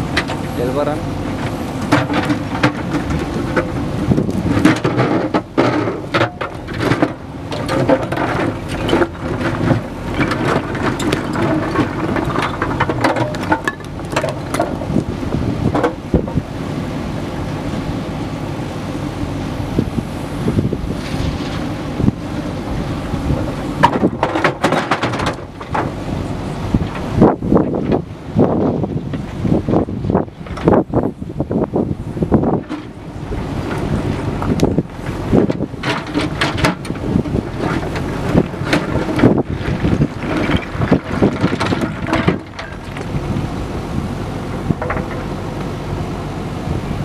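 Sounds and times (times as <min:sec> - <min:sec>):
diesel engine running: 0:00.0 - 0:47.0
rocks clattering and scraping: 0:01.3 - 0:16.4, 0:20.8 - 0:26.0, 0:32.3 - 0:43.4, 0:44.7 - 0:45.4
stones tipping into trailer: 0:01.8 - 0:16.4, 0:23.2 - 0:26.0, 0:33.6 - 0:43.2.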